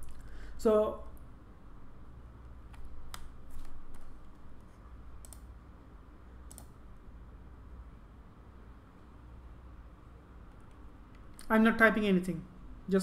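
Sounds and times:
low steady hum: 0.0s - 13.0s
keyboard and mouse clicking: 2.7s - 4.4s, 5.2s - 5.5s, 6.5s - 6.8s.

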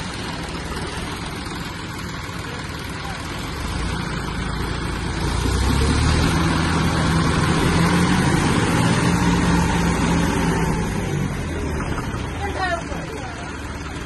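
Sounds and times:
tractor diesel engines under load: 0.0s - 14.0s.

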